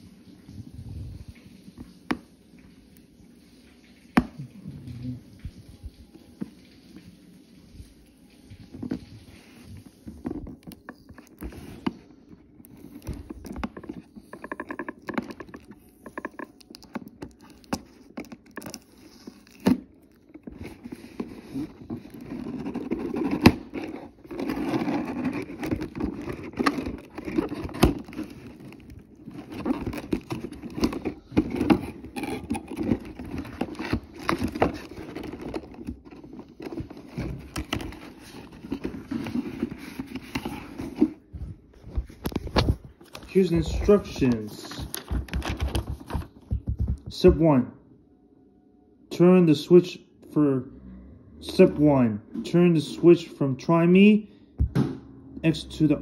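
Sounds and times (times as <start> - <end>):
packaging rustling and scraping: 7.8 - 46.8.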